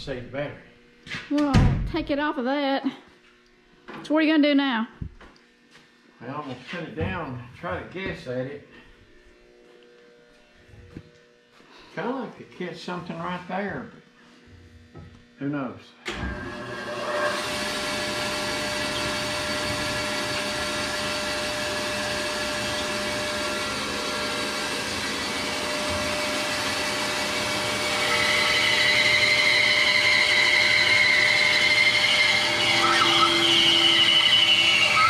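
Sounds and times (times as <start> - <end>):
bandsaw cutting wood: 16.1 - 35.0
bandsaw running: 16.1 - 35.0.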